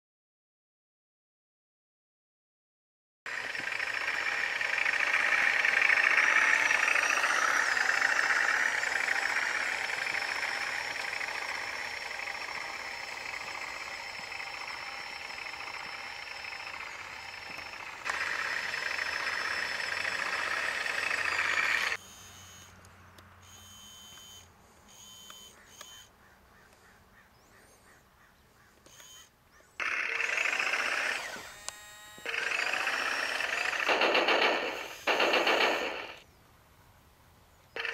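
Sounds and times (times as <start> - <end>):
rapid clicks: 3.3 - 22.0, 29.8 - 36.2
toy tank motors whining: 3.3 - 26.1, 28.8 - 36.2.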